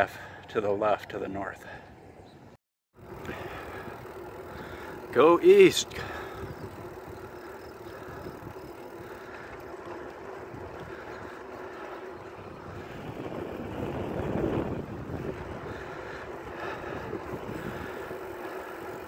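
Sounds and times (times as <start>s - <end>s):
bicycle rolling on asphalt: 3.0s - 19.0s
wind rush on microphone: 5.9s - 9.1s, 12.2s - 18.2s.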